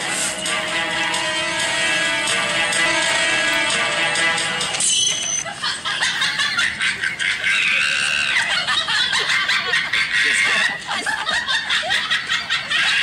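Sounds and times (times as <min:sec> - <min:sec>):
man laughing hard: 0:05.4 - 0:13.0.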